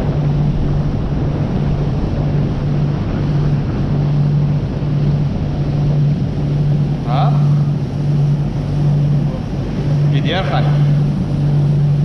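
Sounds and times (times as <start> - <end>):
outboard motor droning: 0.0 - 12.0
water rushing along hull: 0.0 - 12.0
wind on microphone: 0.0 - 12.0.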